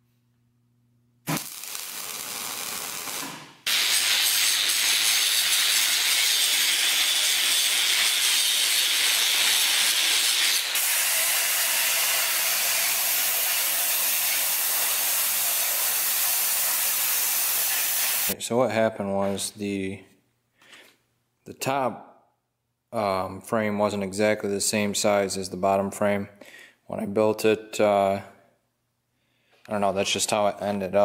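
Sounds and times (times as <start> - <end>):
electric welder hissing: 1.2 - 18.4
angle grinder grinding steel: 2.6 - 18.4.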